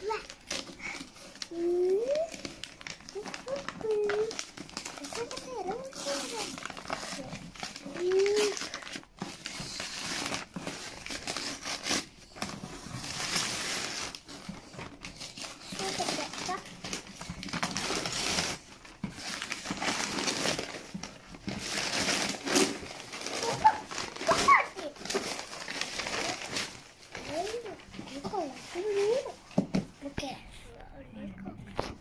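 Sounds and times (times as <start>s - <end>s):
paper crumpling and tearing: 0.0s - 29.5s.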